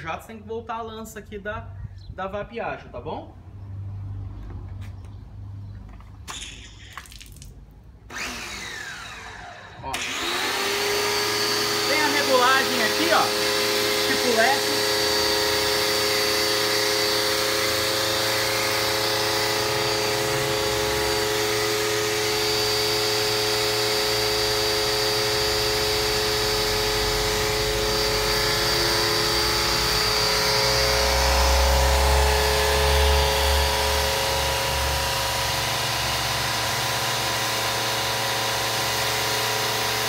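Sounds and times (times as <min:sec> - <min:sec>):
pressure washer whining hum: 0:08.0 - 0:40.0.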